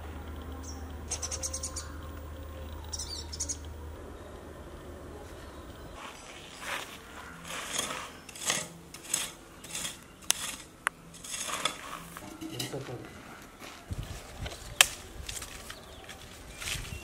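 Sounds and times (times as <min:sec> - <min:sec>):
metal tool scraping gravelly soil: 0:06.0 - 0:12.9.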